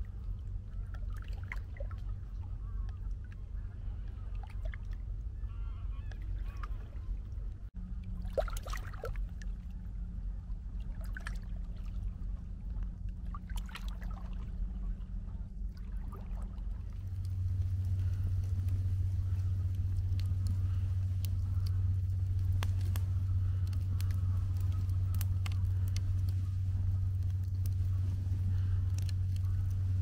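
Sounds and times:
steady low hum: 0:00.0 - 0:30.0
geese honking: 0:05.4 - 0:07.0, 0:17.7 - 0:30.0.

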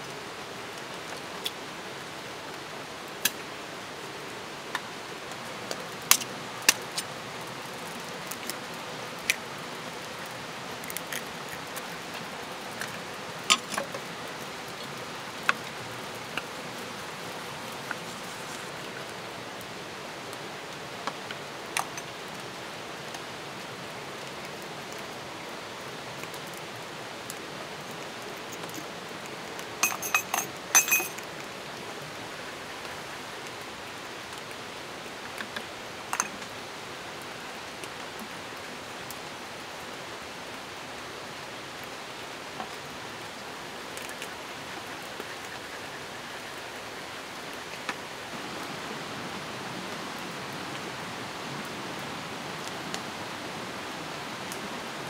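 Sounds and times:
steady background hiss: 0:00.0 - 0:55.0
kitchen utensils clinking: 0:29.8 - 0:31.2.

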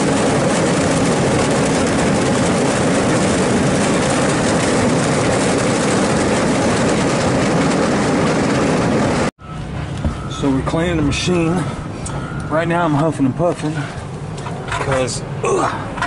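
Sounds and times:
machine rumble: 0:00.0 - 0:16.0.

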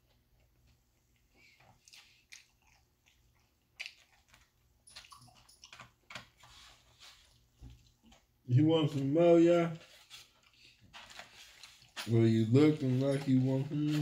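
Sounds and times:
chewing and mouth noises: 0:00.4 - 0:06.2.

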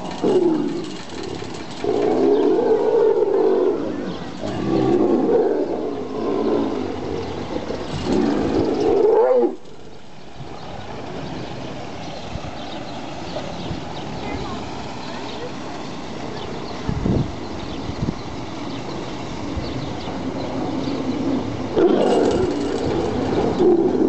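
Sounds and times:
tigers snarling and growling: 0:00.0 - 0:10.0, 0:21.2 - 0:24.0.

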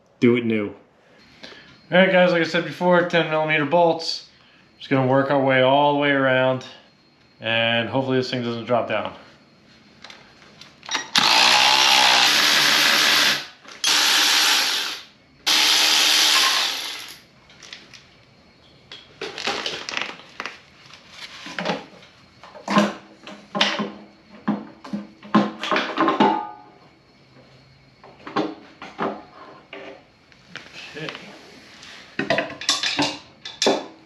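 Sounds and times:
cordless electric ratchet running: 0:11.2 - 0:17.2.

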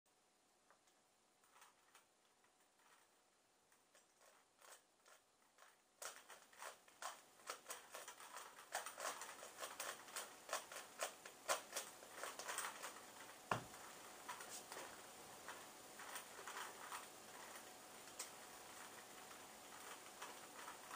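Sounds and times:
puzzle cube plastic clicking: 0:05.6 - 0:20.9.

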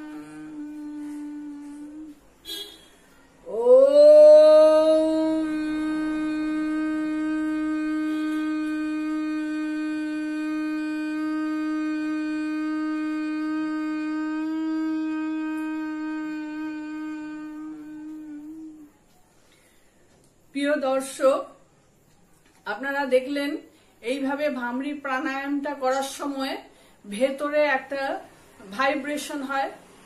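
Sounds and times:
woman humming: 0:00.0 - 0:02.6, 0:03.4 - 0:19.3.

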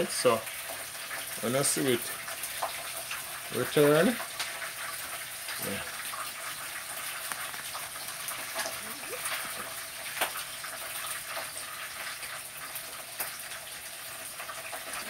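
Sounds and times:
fish sizzling in hot oil: 0:00.0 - 0:15.0.

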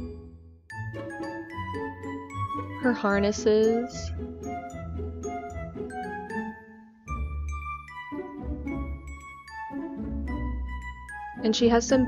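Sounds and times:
background music with bass line: 0:07.1 - 0:11.9.

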